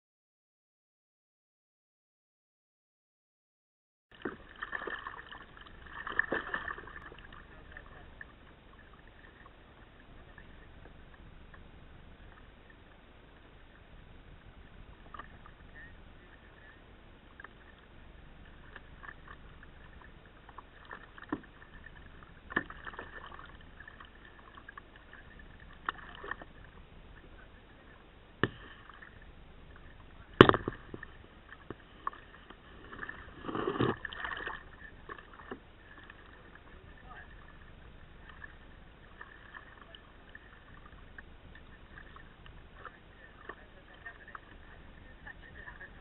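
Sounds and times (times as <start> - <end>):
paddle splashing in water: 4.2 - 9.6, 18.5 - 46.0.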